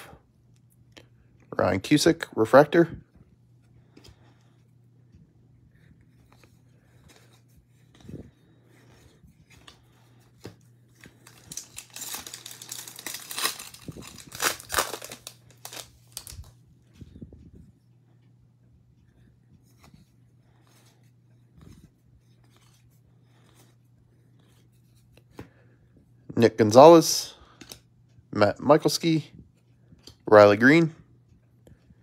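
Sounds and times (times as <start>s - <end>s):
faint low hum: 0.0s - 32.0s
rustling of cards: 3.5s - 17.2s, 19.2s - 25.6s
foil wrapper tearing and crinkling: 11.1s - 16.5s.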